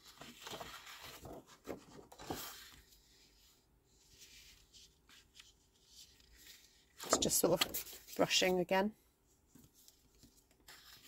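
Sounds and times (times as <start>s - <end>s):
paper crinkles: 0.0s - 2.9s
paper sheets rustling: 0.0s - 3.2s, 4.1s - 8.5s, 9.6s - 11.0s.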